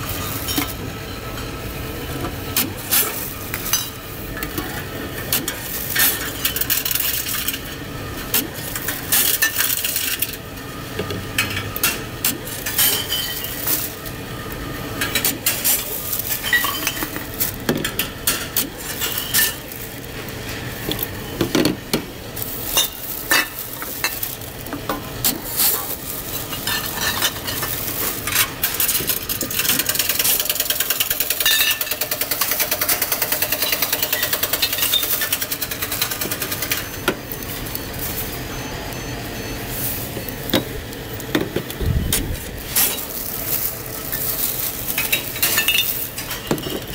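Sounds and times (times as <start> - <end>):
vending machine running: 0.0 - 46.9
bottles and cans clattering: 41.3 - 46.9.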